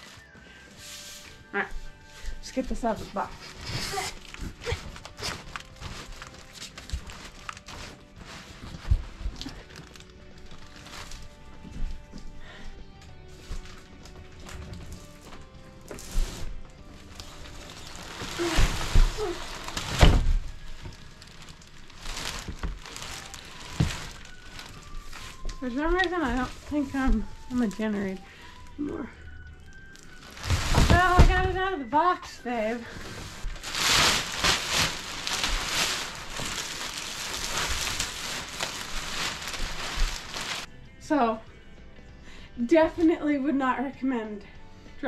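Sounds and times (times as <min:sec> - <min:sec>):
plastic wrap crinkling: 0:01.9 - 0:12.6, 0:13.2 - 0:40.7
box thudding: 0:30.2 - 0:31.8.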